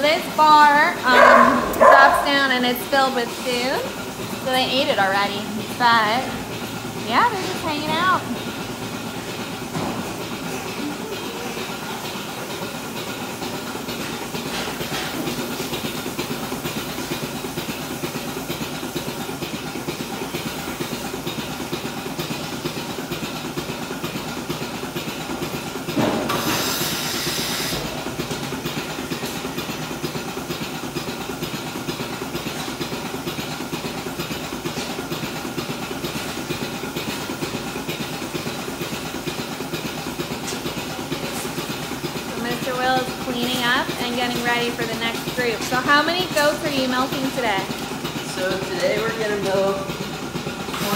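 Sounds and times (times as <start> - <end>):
milking machine rhythmic clicking: 0.0 - 50.9
air hissing: 26.3 - 28.0.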